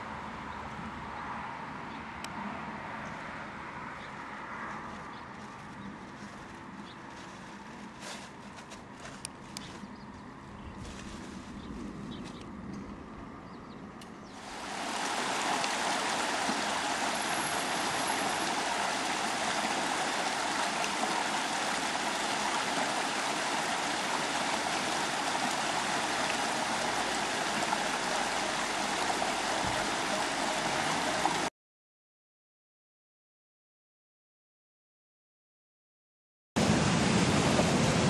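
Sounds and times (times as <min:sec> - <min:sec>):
river flowing over stones: 0:14.4 - 0:31.5.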